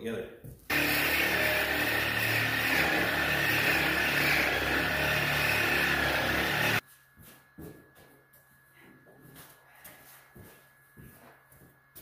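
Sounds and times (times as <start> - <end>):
angle grinder cutting steel: 0.7 - 6.8.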